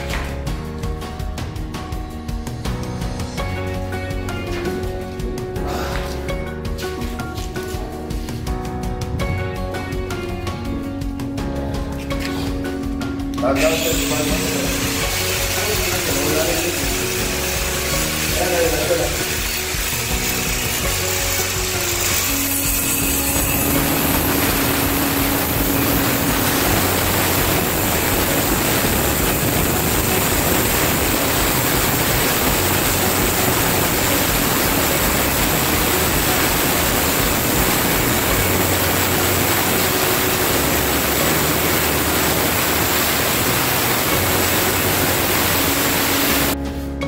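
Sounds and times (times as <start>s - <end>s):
angle grinder cutting stone: 13.6s - 46.6s.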